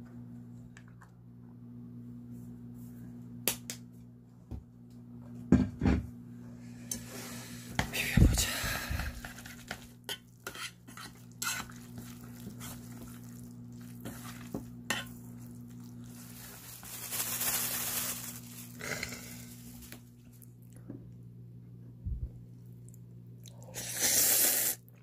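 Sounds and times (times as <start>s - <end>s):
steady low hum: 0.0s - 24.1s
utensils scraping dishes: 9.5s - 11.8s.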